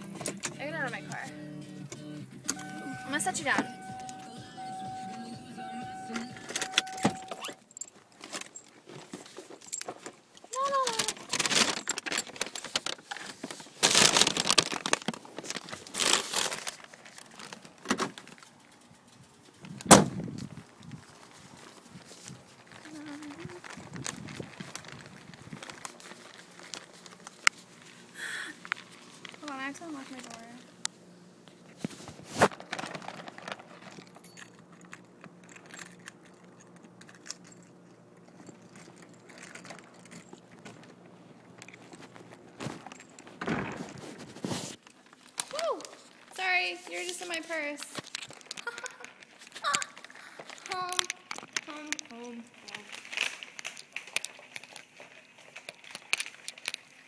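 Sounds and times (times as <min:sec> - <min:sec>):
fabric rustling: 0:10.6 - 0:18.4, 0:31.6 - 0:33.9
small clicks and clinks: 0:33.8 - 0:41.0.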